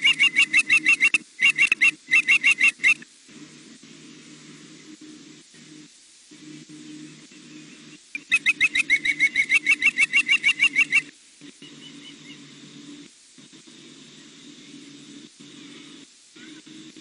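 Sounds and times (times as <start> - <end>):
osprey high chirps: 0.0 - 3.0, 8.2 - 11.1
faint low hum: 0.0 - 17.0.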